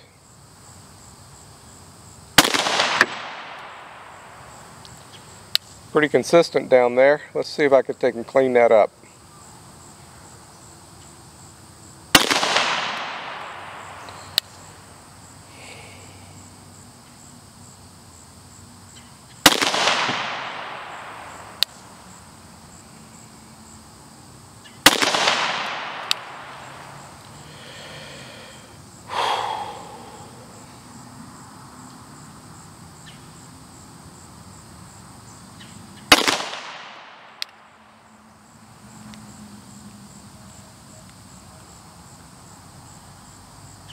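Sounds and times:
insects chirping: 0.0 - 43.9
pistol shots echoing: 2.4 - 4.4, 12.1 - 14.4, 19.4 - 21.7, 24.8 - 27.0, 36.1 - 37.5
short sharp crack: 12.2 - 14.6, 24.8 - 26.9.

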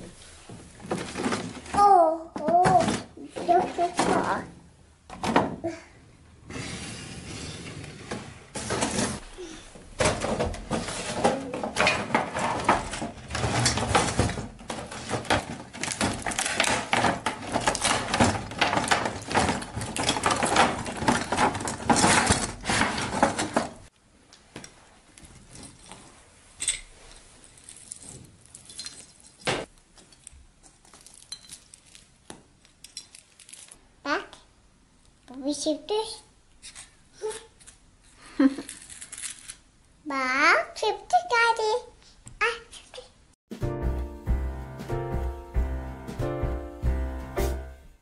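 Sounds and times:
plastic packaging crackling: 12.4 - 23.9
glass ornaments clinking: 30.9 - 32.0.

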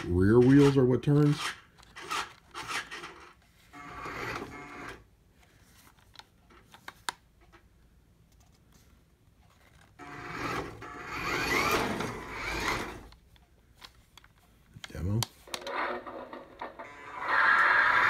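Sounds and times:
toy car motor whirring: 10.0 - 13.1, 16.8 - 18.0.

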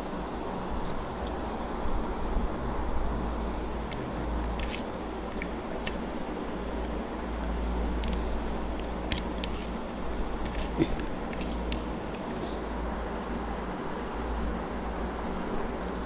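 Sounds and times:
steady low hum: 0.0 - 16.0
fingers squishing rice: 3.7 - 12.7.

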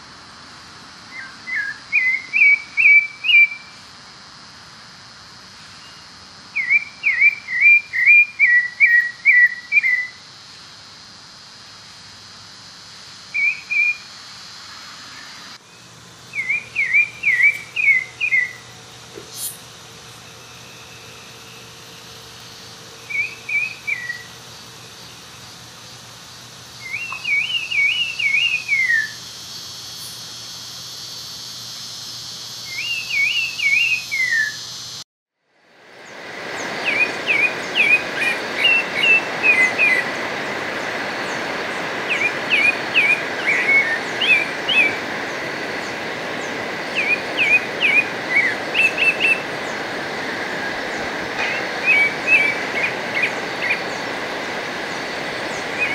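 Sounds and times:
steady hiss: 0.0 - 55.9
thrush singing whistled phrases: 6.6 - 10.2, 13.3 - 14.1, 16.3 - 18.7, 23.1 - 24.3, 26.8 - 29.2, 32.7 - 34.7, 36.6 - 49.8, 50.5 - 55.9.

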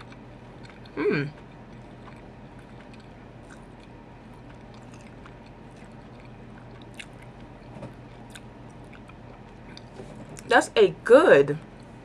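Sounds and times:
faint chewing: 0.0 - 10.5, 11.6 - 12.0
low room hum: 0.0 - 12.0.

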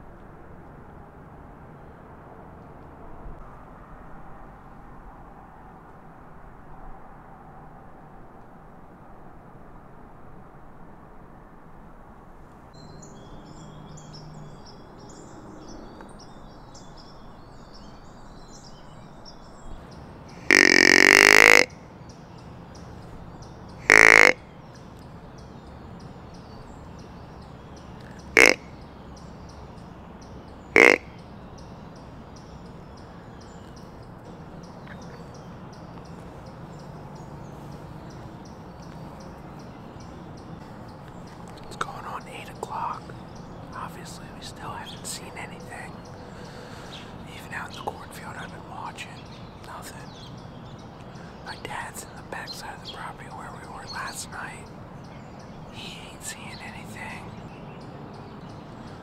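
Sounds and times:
faint bird chirps: 12.8 - 59.0
deer grunt call: 20.3 - 21.8, 23.8 - 24.4, 28.3 - 28.7, 30.7 - 31.2.

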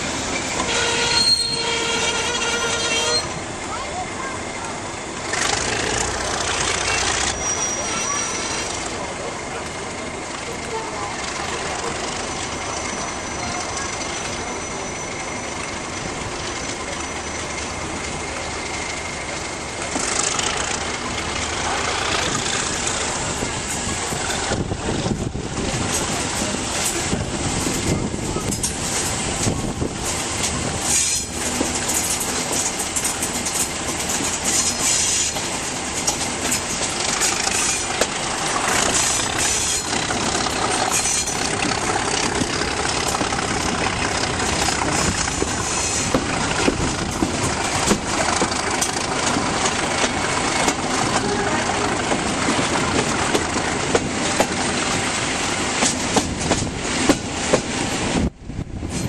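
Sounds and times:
diesel locomotive engine: 0.0 - 59.0
wheels clicking over rail joints: 3.0 - 58.2
wind rushing over microphone: 23.3 - 30.9, 56.1 - 59.0.

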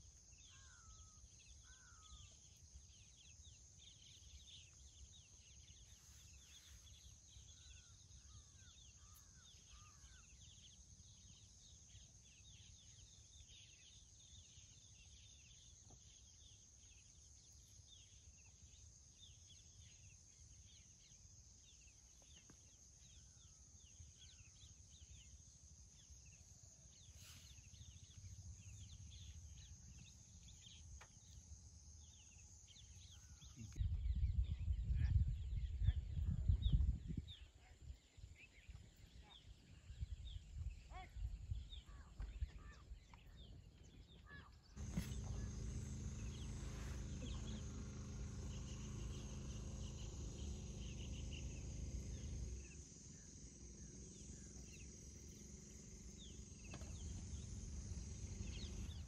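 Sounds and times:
small birds chirping: 0.0 - 59.0
low rumble: 44.8 - 59.0.

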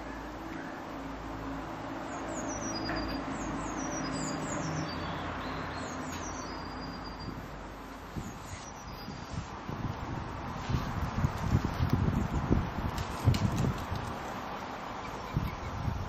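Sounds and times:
distant road traffic: 0.0 - 16.0
bird chirping: 2.0 - 7.6, 8.2 - 9.4, 14.9 - 16.0.

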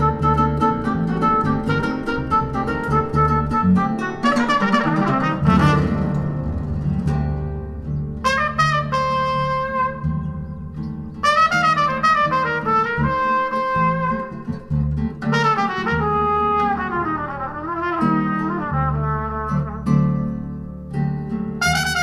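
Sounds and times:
bass line: 0.0 - 15.2
melody of held and gliding notes: 0.0 - 22.0.

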